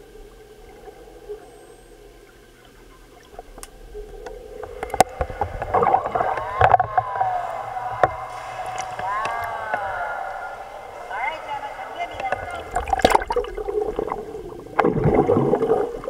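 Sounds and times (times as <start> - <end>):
muffled water sloshing underwater: 0.0 - 16.0.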